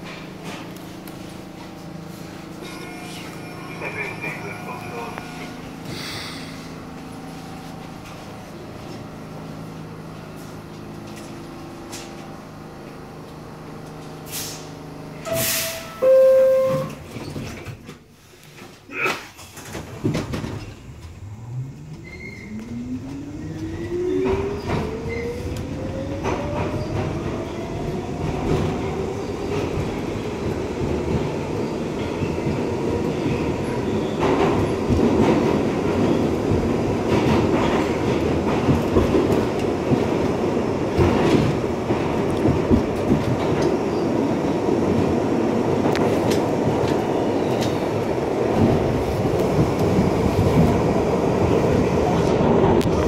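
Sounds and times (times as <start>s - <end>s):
subway car equipment humming: 0.0s - 53.0s
wheel noise on rails: 0.0s - 53.0s
train doors shutting with knocks: 14.4s - 21.2s, 21.9s - 53.0s
traction motors whining: 20.4s - 30.1s.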